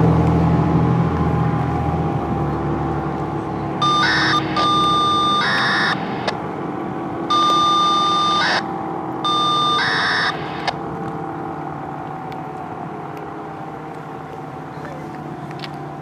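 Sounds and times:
radio data tone bursts: 3.8 - 6.4, 7.3 - 8.6, 9.3 - 10.8.

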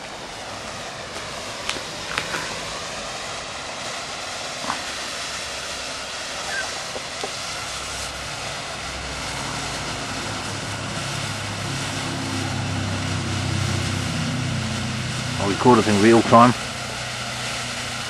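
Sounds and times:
low engine drone: 0.0 - 18.0
smoke composition burning hiss: 0.0 - 18.0
small crackles: 1.6 - 2.6, 6.4 - 7.5.

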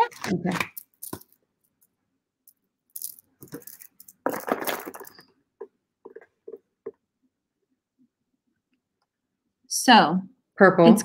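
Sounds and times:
beads rattling and clinking: 0.0 - 1.9, 2.5 - 6.6.

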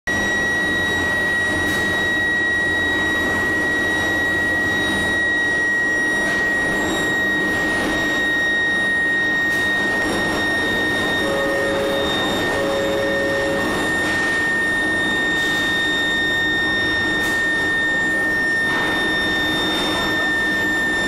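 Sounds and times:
high whine: 0.1 - 21.0
steel mill machinery din: 11.1 - 14.2.

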